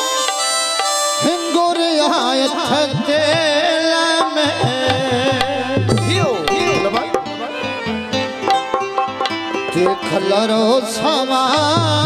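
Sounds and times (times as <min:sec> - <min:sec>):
amplified folk music: 0:00.0 - 0:12.0
person singing: 0:01.2 - 0:08.5
hand drum beats: 0:02.8 - 0:07.6.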